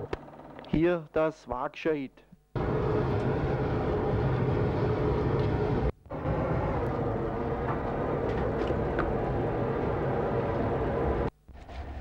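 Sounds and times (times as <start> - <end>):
constant hum: 0.0 - 12.0
forge air blower roaring: 2.6 - 12.0.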